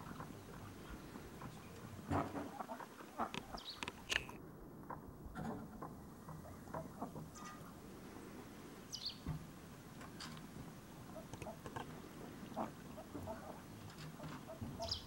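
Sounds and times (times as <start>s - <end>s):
ducks dabbling and splashing: 0.0s - 4.0s, 5.6s - 15.0s.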